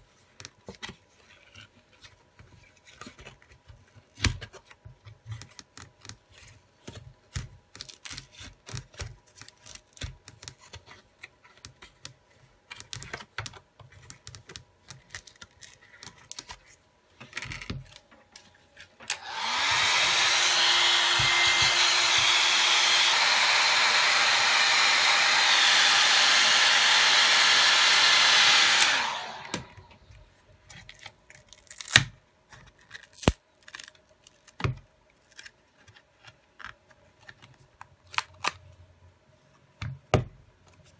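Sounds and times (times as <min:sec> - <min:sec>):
hot-air blower running: 0:19.1 - 0:30.0.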